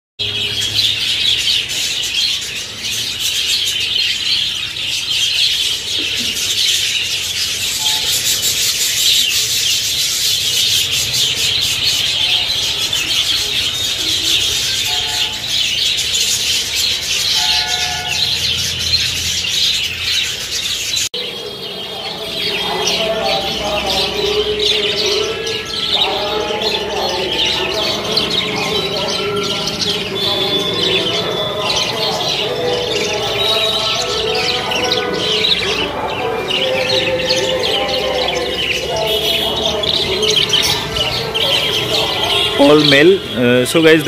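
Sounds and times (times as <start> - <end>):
budgerigars chattering and chirping: 0.2 - 44.0.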